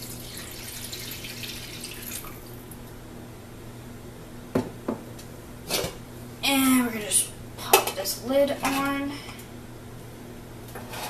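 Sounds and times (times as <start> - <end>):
water pouring into hot skillet: 0.0 - 2.5
glass cup knocking on counter: 4.5 - 5.0.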